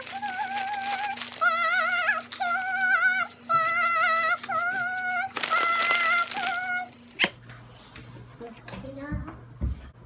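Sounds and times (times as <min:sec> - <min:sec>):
high voice singing: 0:00.0 - 0:07.0.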